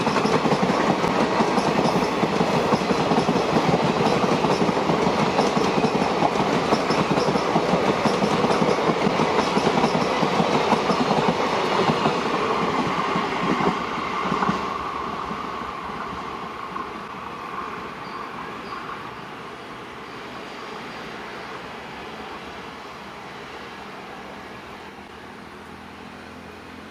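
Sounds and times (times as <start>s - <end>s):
train wheels clickety-clack: 0.0s - 19.1s.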